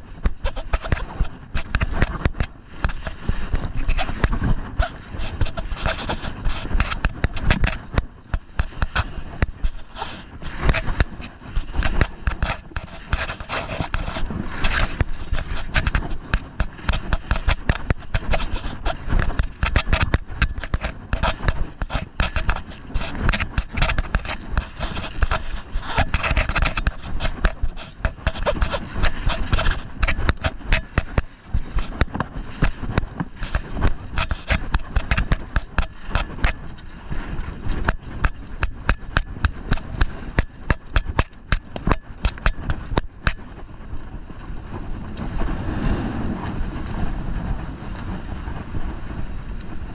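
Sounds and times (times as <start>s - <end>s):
skis scraping over snow: 0.0s - 49.9s.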